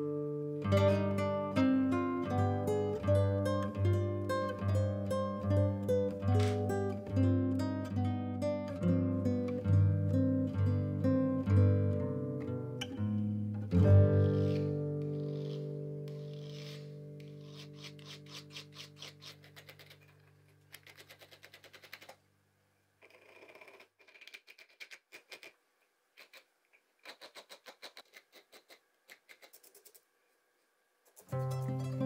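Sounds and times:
guitar chord: 0:00.0 - 0:16.0, 0:31.4 - 0:32.0
needle file rasping on metal: 0:14.2 - 0:20.1, 0:27.0 - 0:29.7.

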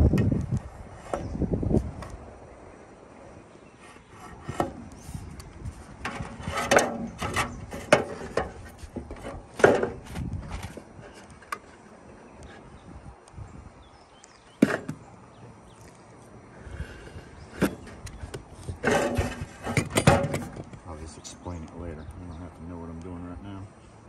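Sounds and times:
metal trim scraping on wood: 0:03.8 - 0:12.8, 0:16.8 - 0:20.7.

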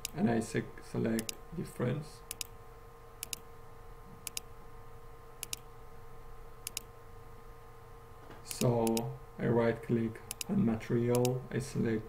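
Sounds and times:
computer mouse clicks: 0:00.0 - 0:00.2, 0:01.2 - 0:01.4, 0:02.3 - 0:02.5, 0:03.2 - 0:03.4, 0:04.2 - 0:04.5, 0:05.4 - 0:05.7, 0:06.6 - 0:06.9, 0:08.5 - 0:09.1, 0:10.3 - 0:10.5
faint steady hum: 0:00.0 - 0:12.0.

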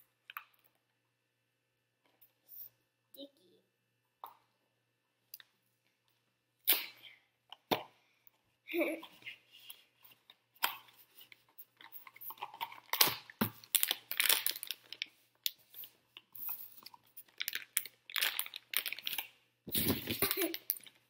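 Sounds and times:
foil wrapper crinkling: 0:12.4 - 0:15.1, 0:17.2 - 0:20.9.

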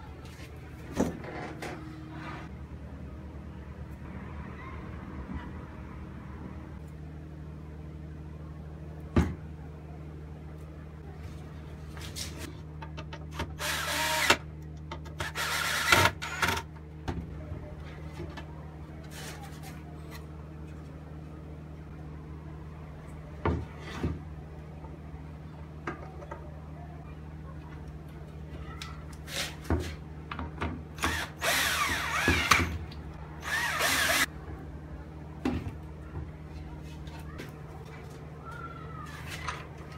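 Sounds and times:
cordless drill drilling into wood: 0:13.6 - 0:14.4, 0:31.0 - 0:32.7, 0:33.4 - 0:34.3.

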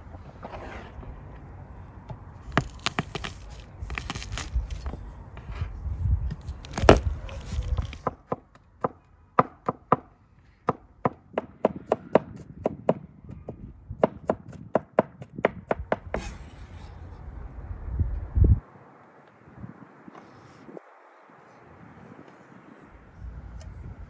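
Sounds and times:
knife scraping board: 0:00.4 - 0:01.0, 0:16.2 - 0:17.2.

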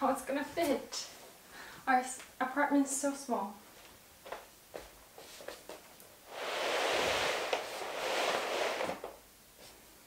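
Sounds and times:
carpet swishing along floor: 0:04.8 - 0:09.8.

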